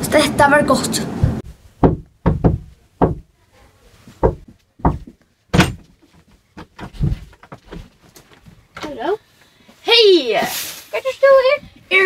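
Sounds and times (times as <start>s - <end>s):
knocks on a door: 1.2s - 3.3s, 4.2s - 5.9s.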